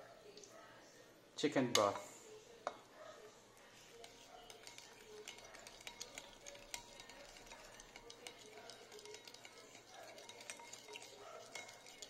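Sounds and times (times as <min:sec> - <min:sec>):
spoon stirring sauce in bowl: 0:01.7 - 0:02.9, 0:03.6 - 0:12.0.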